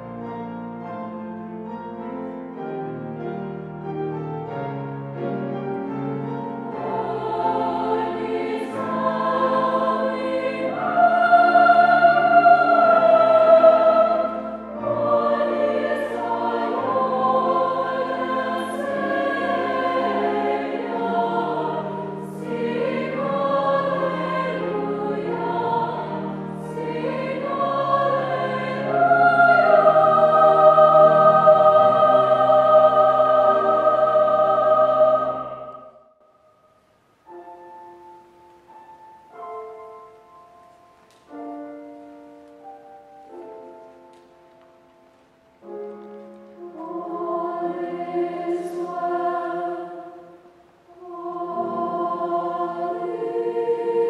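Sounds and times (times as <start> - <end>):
youth choir singing: 6.7 - 36.1, 46.6 - 54.0.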